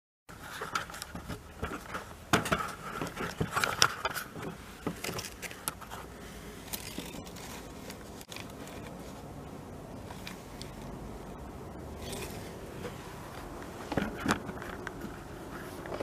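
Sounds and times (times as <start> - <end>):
cables being moved: 0.3 - 9.4
plastic bag crinkling: 6.6 - 9.1.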